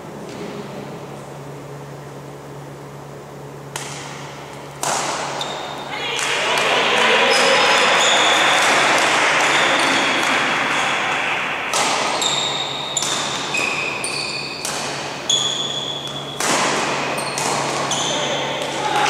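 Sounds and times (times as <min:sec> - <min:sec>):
sports hall background noise: 0:00.0 - 0:19.0
racket striking shuttlecock: 0:03.6 - 0:06.7, 0:07.3 - 0:19.0.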